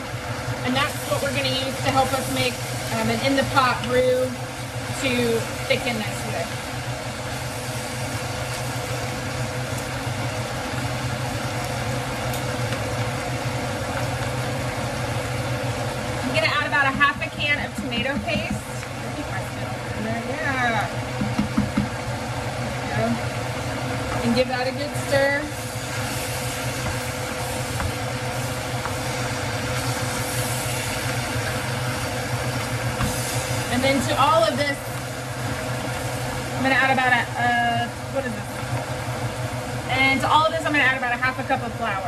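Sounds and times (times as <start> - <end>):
low mechanical hum: 0.0 - 42.0
meat and vegetables sizzling: 0.0 - 42.0
wooden spoon stirring: 25.5 - 37.0.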